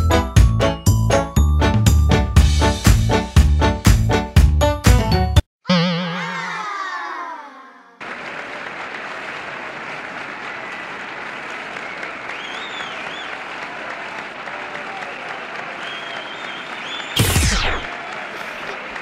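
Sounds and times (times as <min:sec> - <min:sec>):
wobbling falling cartoon effect: 0:05.7 - 0:06.9
crowd applause: 0:08.0 - 0:19.0
high whistles: 0:11.8 - 0:13.4, 0:15.8 - 0:17.9.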